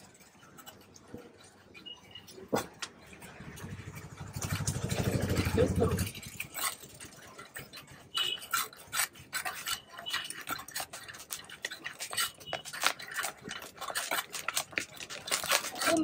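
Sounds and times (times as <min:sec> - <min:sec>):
chickpeas rattling: 0:03.3 - 0:16.0
scoop scraping clay pot: 0:03.4 - 0:16.0.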